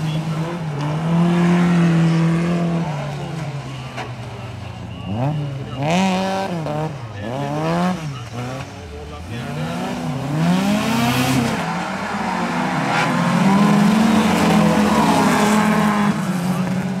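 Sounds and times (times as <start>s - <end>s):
car engine revving sharply: 0.0s - 4.2s, 5.0s - 17.0s
race car engines running hard: 0.0s - 17.0s.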